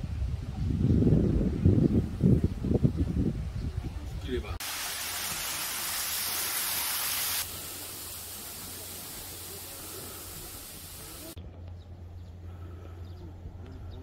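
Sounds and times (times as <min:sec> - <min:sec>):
outdoor ambience: 0:00.0 - 0:14.0
waterfall hissing: 0:04.6 - 0:11.4.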